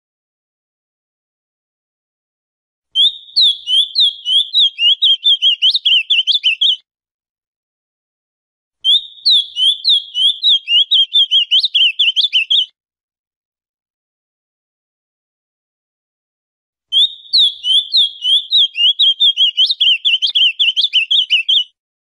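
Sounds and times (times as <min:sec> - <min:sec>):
bird singing: 0:03.0 - 0:06.8, 0:08.8 - 0:12.7, 0:16.9 - 0:21.7.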